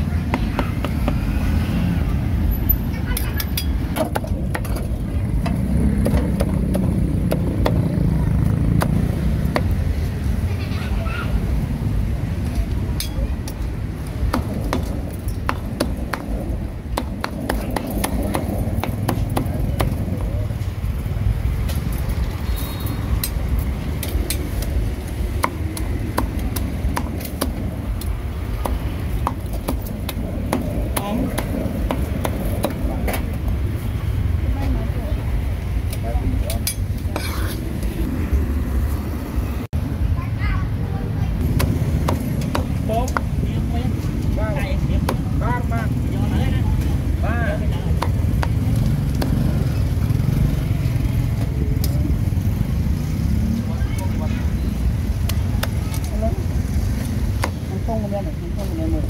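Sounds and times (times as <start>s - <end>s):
low rumble of street traffic: 0.0s - 59.0s
cleaver chopping on wooden block: 41.5s - 43.3s, 45.0s - 45.3s.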